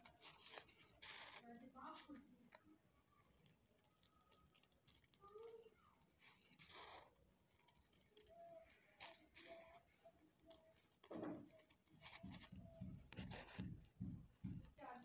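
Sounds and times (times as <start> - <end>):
scissors snipping foam sheet: 0.0 - 2.6, 9.0 - 15.0.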